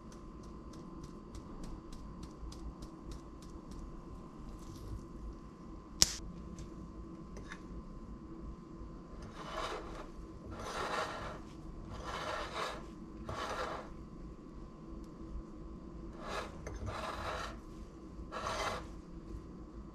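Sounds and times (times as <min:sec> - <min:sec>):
sharp click: 0:06.0 - 0:06.2
spoon scraping flour in bowl: 0:09.2 - 0:13.9, 0:16.2 - 0:17.7, 0:18.3 - 0:19.0.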